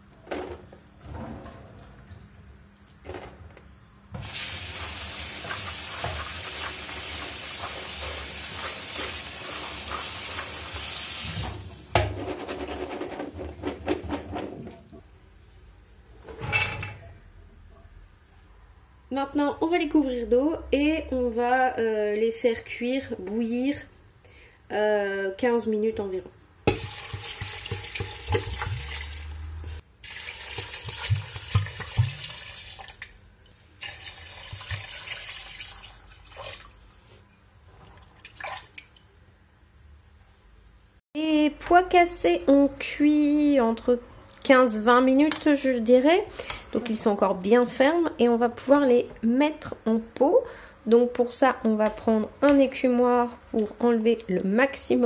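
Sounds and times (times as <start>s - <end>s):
tap water running: 4.2s - 12.0s, 26.7s - 37.0s.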